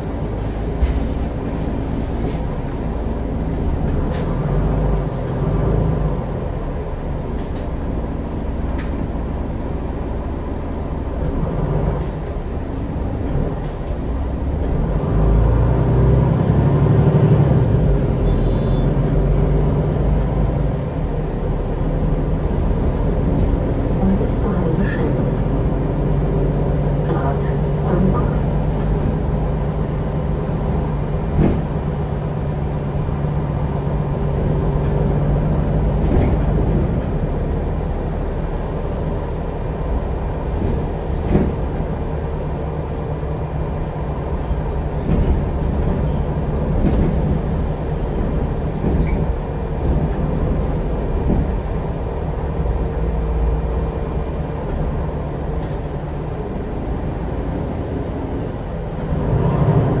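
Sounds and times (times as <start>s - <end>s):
bus engine drone: 0.0s - 60.0s
road and tyre rumble: 0.0s - 60.0s
body knocks and rattles: 45.0s - 51.7s.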